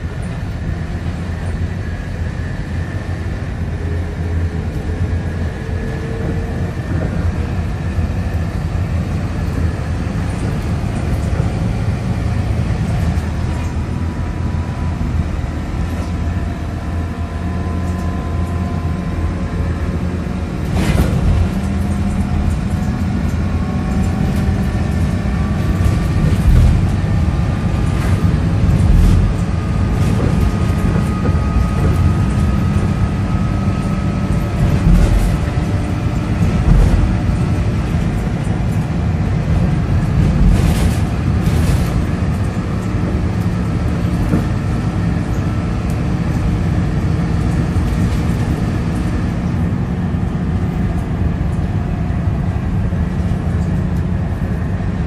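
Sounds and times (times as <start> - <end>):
bus engine rumble: 0.0 - 55.0
body knocks and rattles: 34.5 - 39.0.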